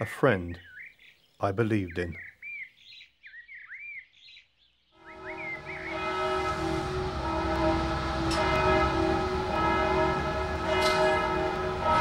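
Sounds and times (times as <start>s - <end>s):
low rumble: 5.0s - 12.0s
steady droning tone: 5.0s - 12.0s.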